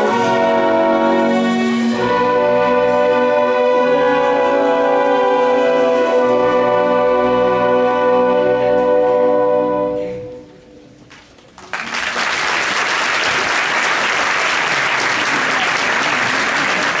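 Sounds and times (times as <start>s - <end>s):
orchestra holding a chord: 0.0s - 10.6s
audience applause: 11.5s - 17.0s.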